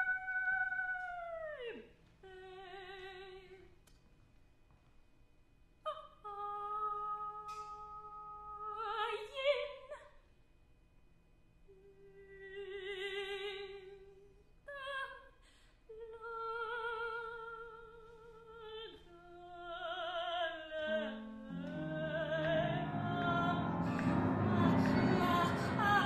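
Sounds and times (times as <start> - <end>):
woman singing with vibrato: 0.0 - 3.7, 5.9 - 10.0, 11.7 - 15.3, 15.9 - 26.0
ensemble instruments playing low notes: 21.5 - 26.0.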